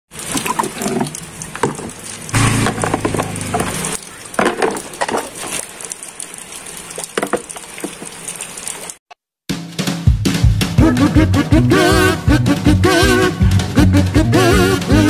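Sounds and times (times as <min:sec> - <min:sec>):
objects knocking and scraping: 0:00.4 - 0:05.6, 0:07.2 - 0:08.1.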